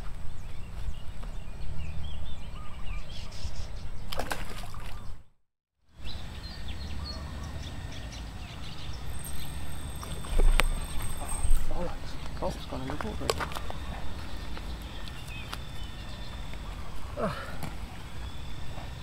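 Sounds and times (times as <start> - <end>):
small birds chirping: 6.0 - 19.0.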